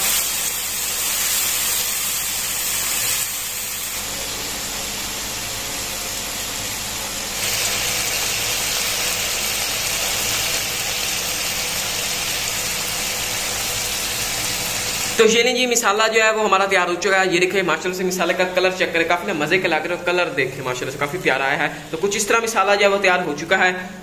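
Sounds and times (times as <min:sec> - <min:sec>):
sauce bubbling and sizzling in pan: 0:00.0 - 0:15.2.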